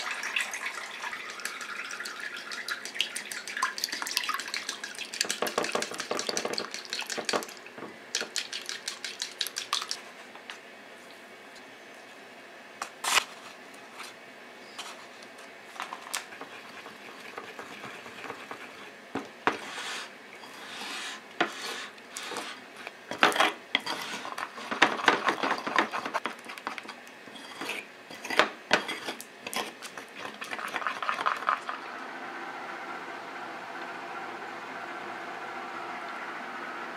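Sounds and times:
spoon scraping while stirring: 0:15.9 - 0:31.7.

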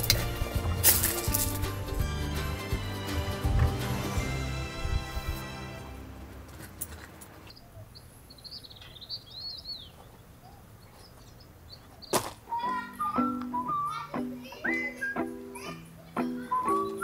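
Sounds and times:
small birds chirping: 0:07.3 - 0:17.0.

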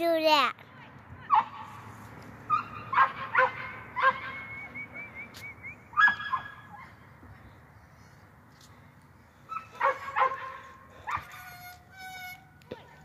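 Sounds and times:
dog yipping: 0:02.5 - 0:04.5, 0:05.9 - 0:06.9, 0:09.5 - 0:13.0.

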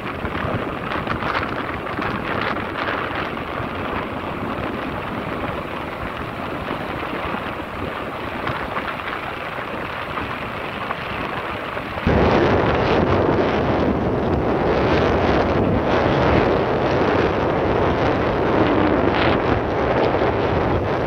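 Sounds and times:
wind rushing over microphone: 0:00.0 - 0:21.0.

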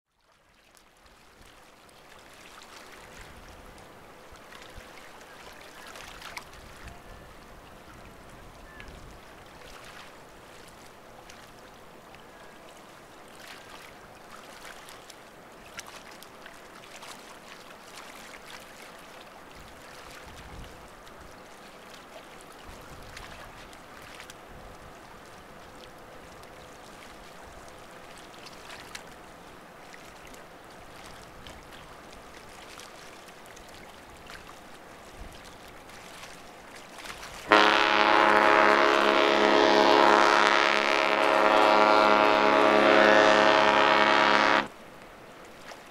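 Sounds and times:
water lapping against rocks: 0:00.6 - 0:45.9.

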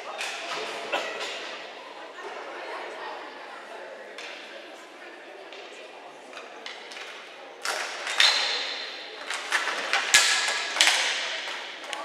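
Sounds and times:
hockey sticks and ball knocking: 0:06.4 - 0:12.0.

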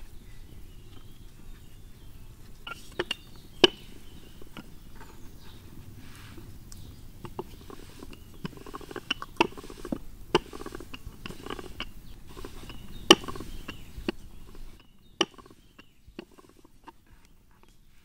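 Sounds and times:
rolling pin rolling dough: 0:00.7 - 0:17.1.

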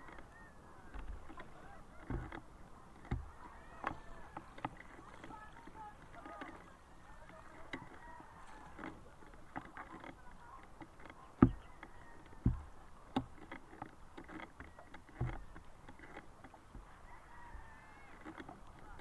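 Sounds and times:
small clicks and ticks: 0:00.0 - 0:19.0
water lapping and sloshing: 0:00.0 - 0:19.0
dull thumps: 0:10.8 - 0:16.1.

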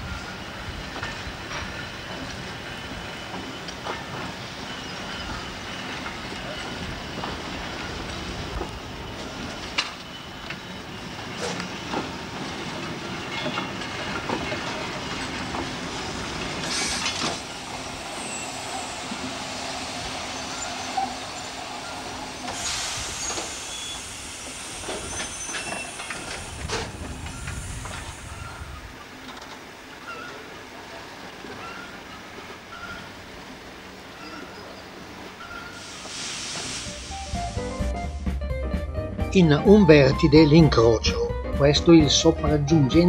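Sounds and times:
train rumbling: 0:00.0 - 0:43.0
loud hiss bursts: 0:16.5 - 0:28.8, 0:35.7 - 0:38.1.

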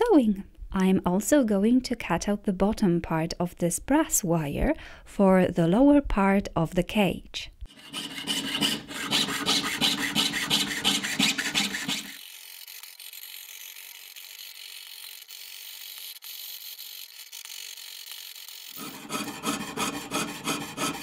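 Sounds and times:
saw rasping through metal sheet: 0:07.7 - 0:21.0.

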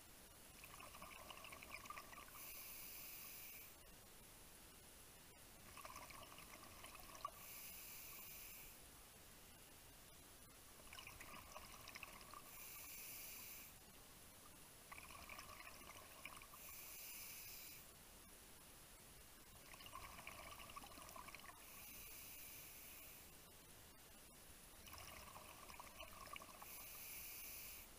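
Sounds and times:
exhaled bubbles rushing: 0:00.6 - 0:02.3, 0:14.9 - 0:16.5, 0:19.7 - 0:21.5, 0:24.8 - 0:26.6
scuba breathing through regulator: 0:16.6 - 0:17.8, 0:26.6 - 0:27.9.

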